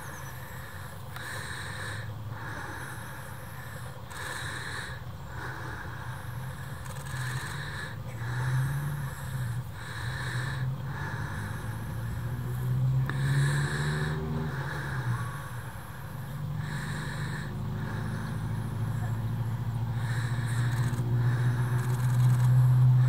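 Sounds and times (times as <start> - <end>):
low motor hum: 0.0 - 23.0.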